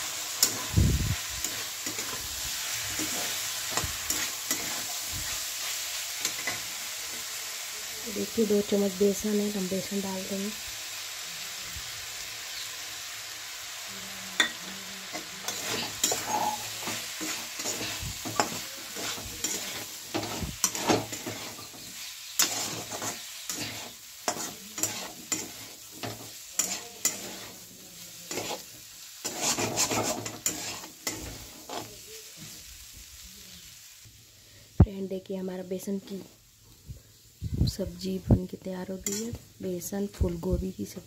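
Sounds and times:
spatula scraping and stirring: 0.0 - 7.4, 14.4 - 32.1
frying sizzle: 0.0 - 41.0.

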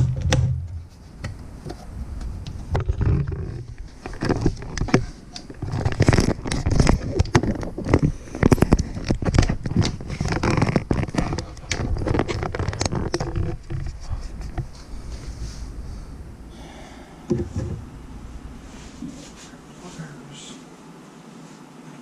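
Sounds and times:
cloth rubbing on microphone: 10.0 - 16.2, 18.1 - 21.8.

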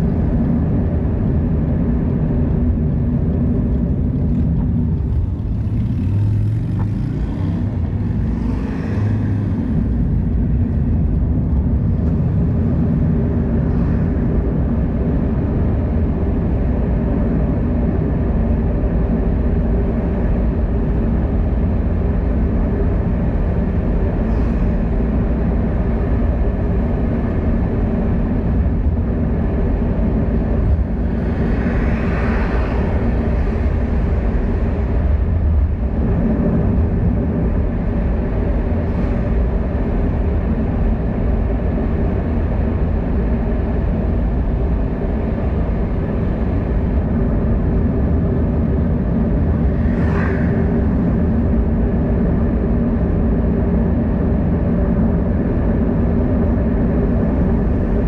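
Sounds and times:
road traffic rumble: 0.0 - 58.0
vehicle passing: 5.0 - 10.2, 30.7 - 37.7, 49.6 - 51.4.

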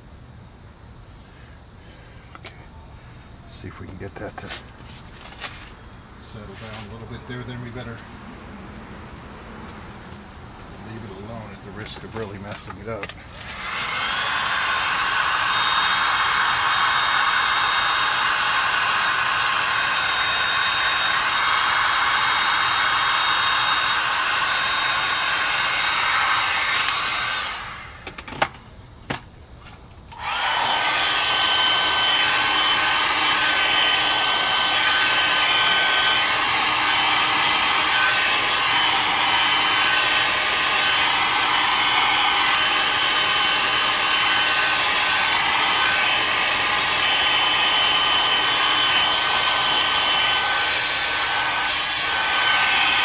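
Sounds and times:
hot-air blower whining: 10.8 - 28.5, 30.1 - 53.0.

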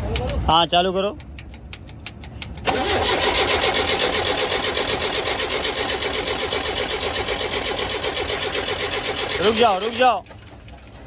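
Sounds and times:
starter motor cranking diesel engine: 2.6 - 11.0.

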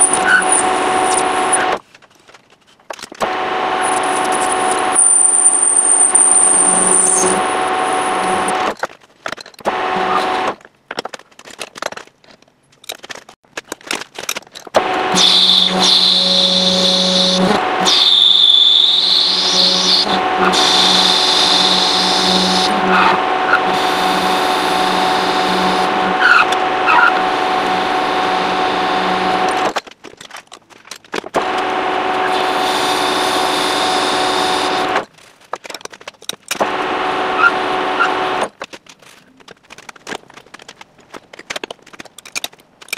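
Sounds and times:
high cutting whine: 0.0 - 1.8, 3.2 - 8.8, 9.7 - 10.6, 14.8 - 29.8, 31.4 - 35.0, 36.6 - 38.5
metal lathe humming: 14.9 - 29.7.

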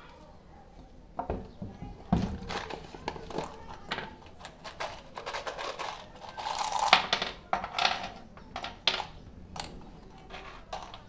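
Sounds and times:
screws rattling onto wood: 2.4 - 11.0.

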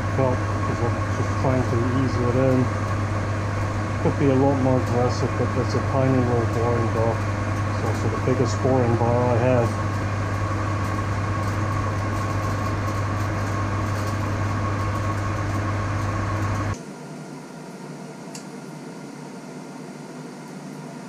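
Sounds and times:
metal lathe motor hum: 0.0 - 16.8
faint shop hum: 0.0 - 21.0.

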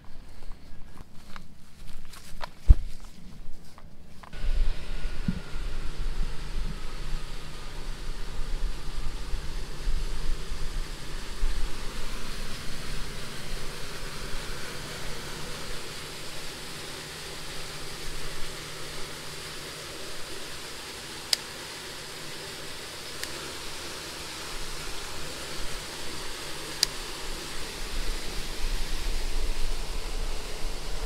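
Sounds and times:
walking through grass and brush: 0.0 - 19.6.

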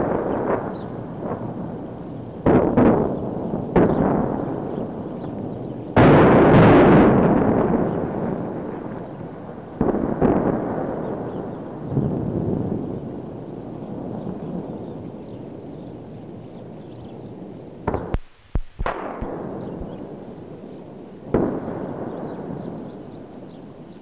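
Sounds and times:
heavy blast: 0.0 - 9.0, 17.9 - 20.6
sharp explosion bangs: 0.0 - 13.0, 17.9 - 20.5, 21.3 - 23.6
explosion rumble: 0.0 - 15.7, 17.8 - 20.6.

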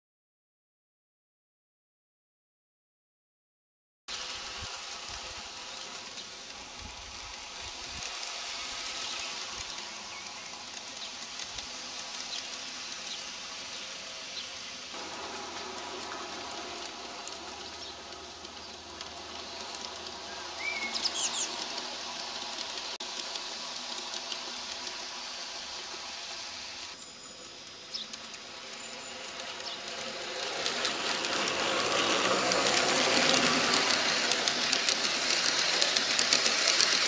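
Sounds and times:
model train humming: 4.1 - 37.0
birds chirping: 17.3 - 22.2.

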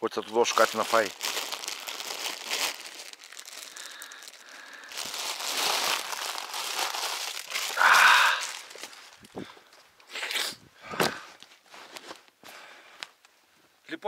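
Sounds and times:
plastic bag crinkling: 0.1 - 9.4.

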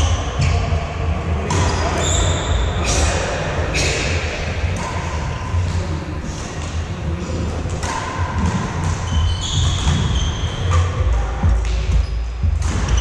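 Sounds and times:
rackets striking shuttlecock: 1.5 - 5.7, 7.6 - 13.0.

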